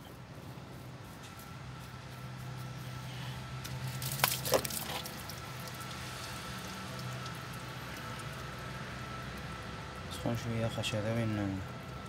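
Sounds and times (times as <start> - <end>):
coolant trickling and dripping: 3.5 - 12.0.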